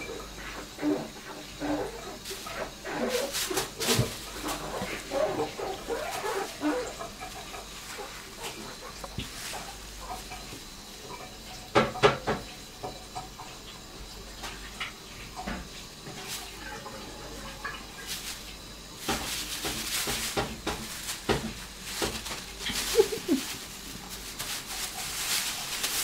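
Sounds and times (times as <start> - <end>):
plastic bag crinkling and rustling: 1.8 - 10.6, 17.6 - 26.0.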